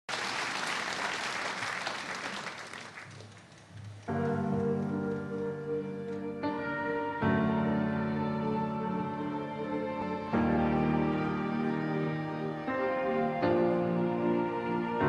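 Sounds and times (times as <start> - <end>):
audience applause: 0.0 - 5.4
piano chords: 4.1 - 15.0.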